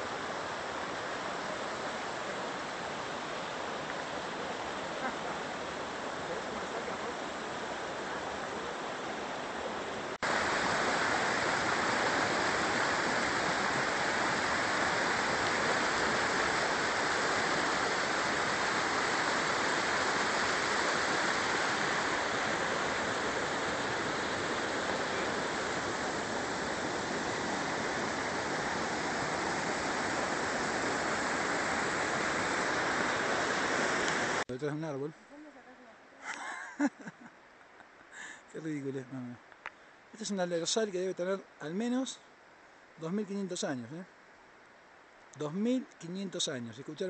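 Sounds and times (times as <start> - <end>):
river rushing: 0.0 - 34.5.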